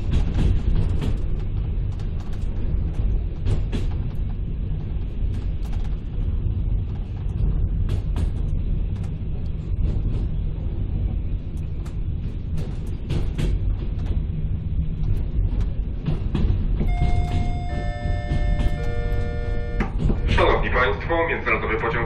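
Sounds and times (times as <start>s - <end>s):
train rumble inside carriage: 0.0s - 22.0s
sharp clicks and knocks: 11.5s - 14.3s, 15.0s - 20.4s.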